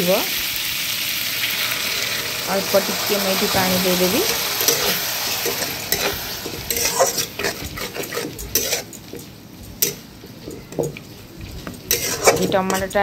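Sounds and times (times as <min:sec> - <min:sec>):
tomatoes sizzling: 0:00.0 - 0:13.0
spatula scraping a metal pan: 0:02.8 - 0:09.2, 0:11.8 - 0:13.0.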